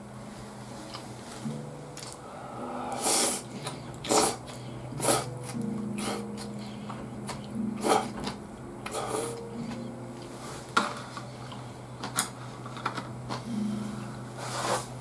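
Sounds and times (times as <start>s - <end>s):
noodles being slurped: 4.0s - 6.2s.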